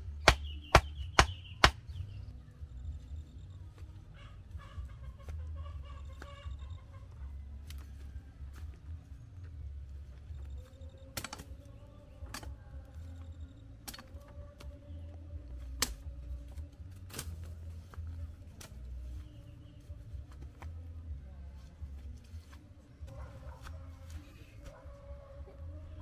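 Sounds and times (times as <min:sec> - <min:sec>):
machete chopping: 0:00.2 - 0:02.0, 0:11.1 - 0:11.6, 0:15.7 - 0:16.1, 0:17.0 - 0:17.5
plant stems cracking: 0:07.6 - 0:08.8, 0:10.6 - 0:13.0, 0:15.5 - 0:20.8.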